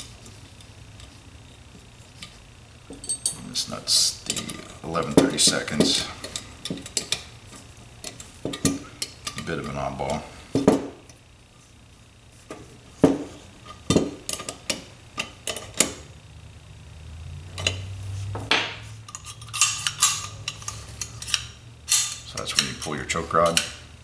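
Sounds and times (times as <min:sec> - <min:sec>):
small metal parts clicking: 0:19.1 - 0:23.7.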